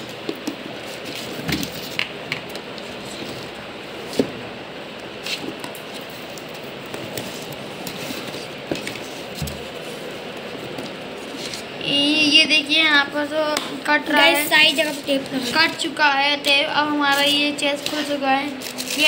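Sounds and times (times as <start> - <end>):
steady background hiss: 0.0 - 19.0
scissors cutting packing tape: 17.2 - 19.0.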